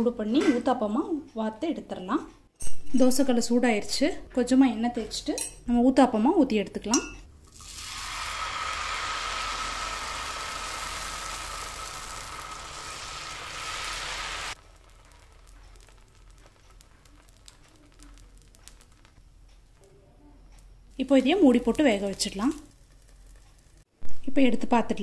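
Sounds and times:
batter sizzling on hot griddle: 0:07.4 - 0:23.9.

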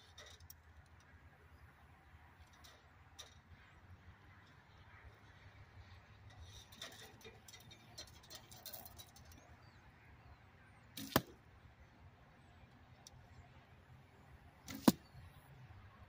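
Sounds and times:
arrow rushing past: 0:11.0 - 0:11.3, 0:14.7 - 0:15.2
arrow thwack of impact: 0:11.0 - 0:11.4, 0:14.7 - 0:15.2.

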